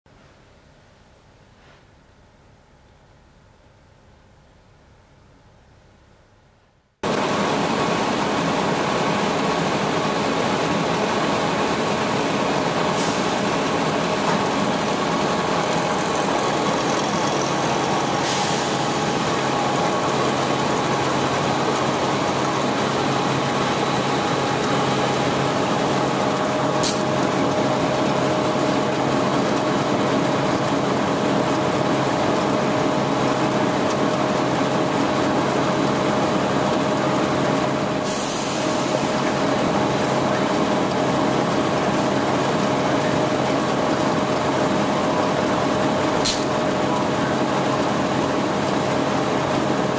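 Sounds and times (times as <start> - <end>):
printing machinery running: 7.0 - 49.9
short sharp click: 46.3 - 46.5.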